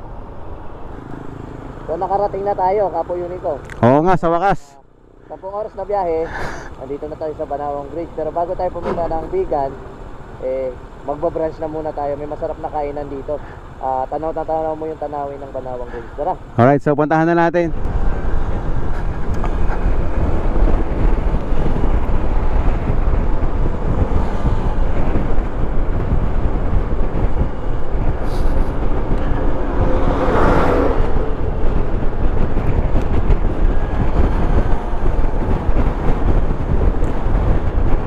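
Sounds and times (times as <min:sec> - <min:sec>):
wind buffeting microphone: 0:17.7 - 0:38.0.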